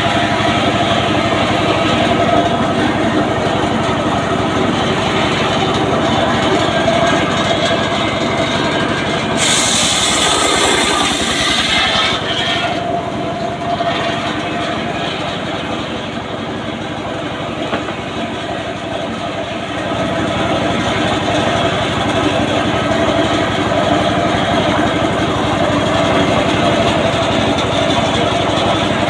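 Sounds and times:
circular saw blade whine: 0.0 - 20.5
sawmill engine thrum: 0.0 - 29.0.

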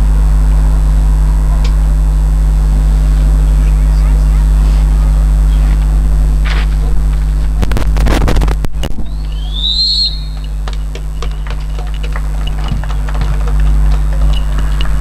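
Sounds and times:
microphone electrical hum: 0.0 - 15.0
short rising falling whistle: 9.0 - 10.6.

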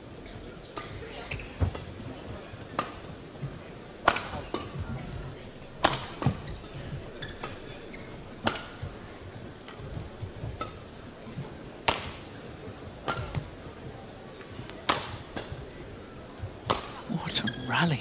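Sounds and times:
racket striking shuttlecock: 4.0 - 4.8, 5.8 - 7.6, 8.4 - 8.9, 11.8 - 12.3, 13.0 - 13.4, 14.8 - 15.5, 16.6 - 17.0.

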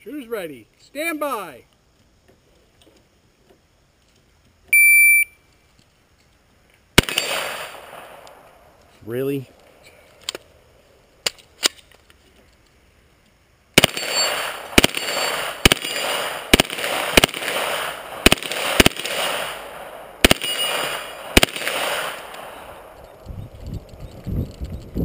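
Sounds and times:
automatic rifle firing bursts: 7.0 - 8.2, 13.8 - 23.0
ringing hits on steel targets: 13.8 - 16.2, 20.3 - 21.3.

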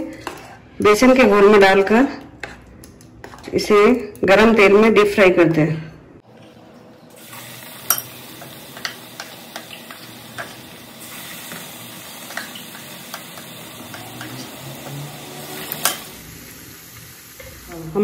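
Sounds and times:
food deep-frying in oil: 7.1 - 18.0
sharp clicks in frying oil: 7.9 - 10.6.

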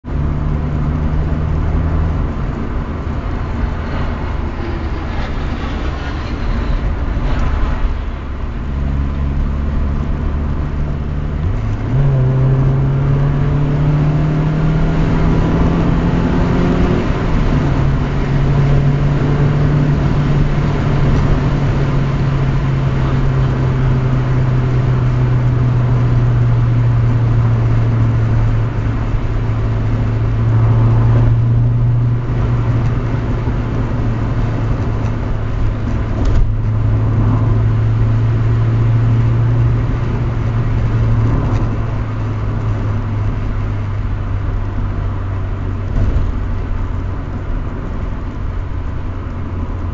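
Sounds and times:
car engine: 0.0 - 49.9
road noise inside car: 0.0 - 49.9.

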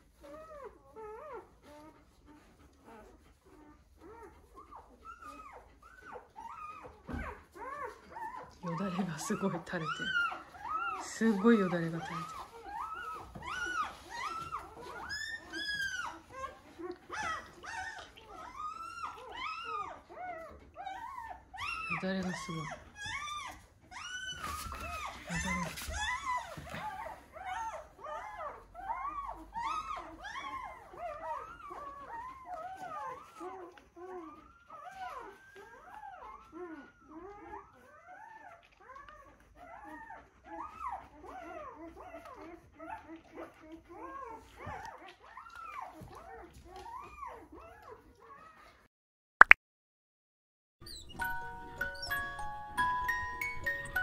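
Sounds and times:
dog whimpering: 0.0 - 48.9, 50.8 - 54.0
puppy crying in squeals: 2.8 - 48.8, 50.8 - 54.0
chiming glockenspiel music: 51.0 - 54.0.

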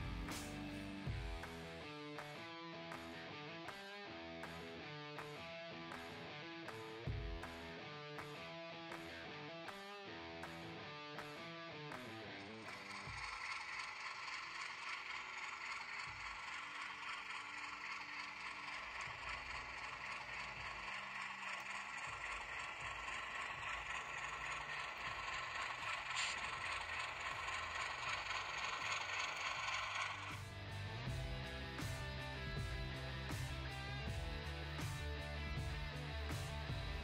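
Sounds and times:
model train motor whirring: 12.6 - 30.4
wheels rattling on rails: 12.6 - 30.4.

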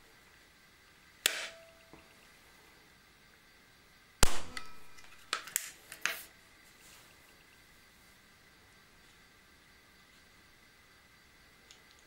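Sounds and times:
air pistol firing crack: 4.2 - 5.1.

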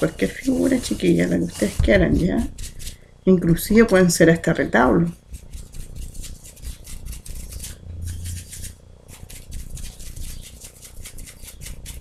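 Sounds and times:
paintbrush dabbing taps and scratches: 0.0 - 4.0.

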